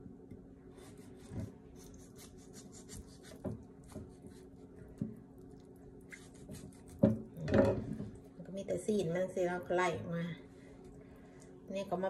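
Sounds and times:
knife scraping chicken: 0.7 - 4.8, 6.1 - 7.1.

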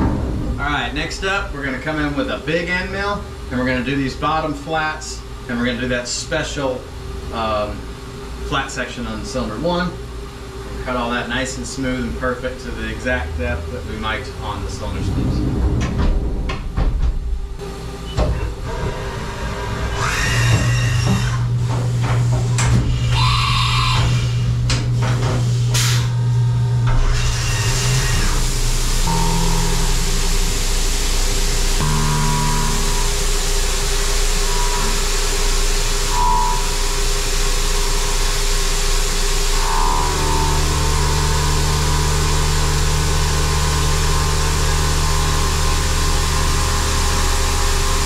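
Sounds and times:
machine humming: 0.0 - 48.0
machine whine: 10.6 - 48.0.

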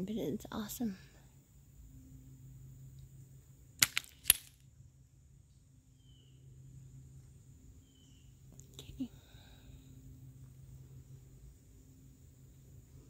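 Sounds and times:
faint steady background noise: 0.0 - 13.0
sharp clicks: 3.8 - 4.5.

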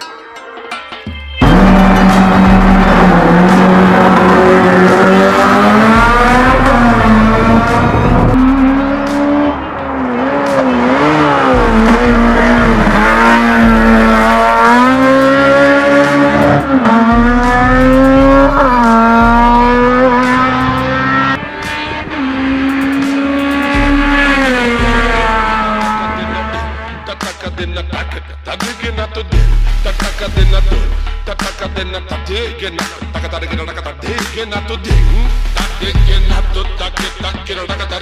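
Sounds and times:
race car engine revving: 1.4 - 27.1.

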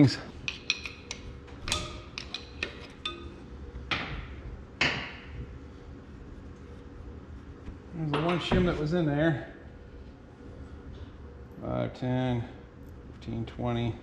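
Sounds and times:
ringing metal clinks: 1.7 - 3.4.

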